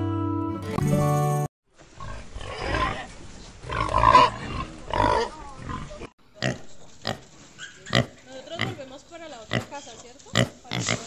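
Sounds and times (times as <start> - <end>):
pigs grunting: 2.0 - 8.8, 9.5 - 11.0.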